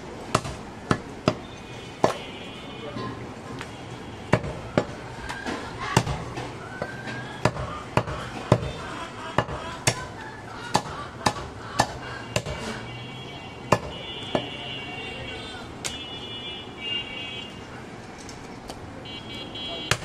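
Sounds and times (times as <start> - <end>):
knife chopping meat and bone: 4.3 - 8.8, 9.4 - 12.7, 13.7 - 14.5.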